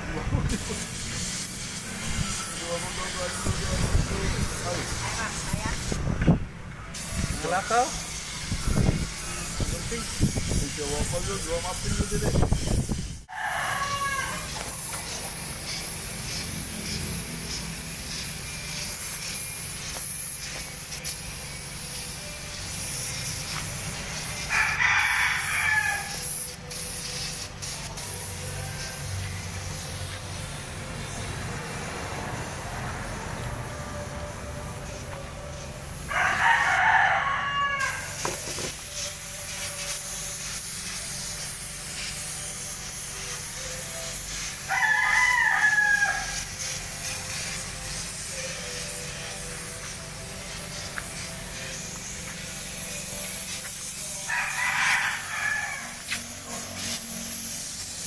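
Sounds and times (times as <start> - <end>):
spray gun air hissing: 0.3 - 58.0
rooster crowing: 13.3 - 14.9, 24.5 - 26.4, 36.0 - 38.2, 44.6 - 46.6, 54.2 - 57.0.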